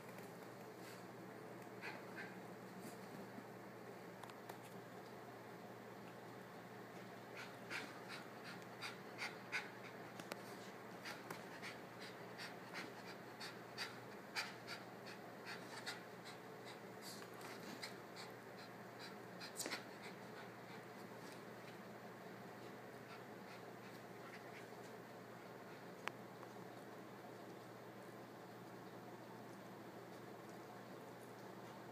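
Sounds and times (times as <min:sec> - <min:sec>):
dog panting: 0:01.8 - 0:02.4, 0:07.3 - 0:21.8, 0:22.6 - 0:26.0.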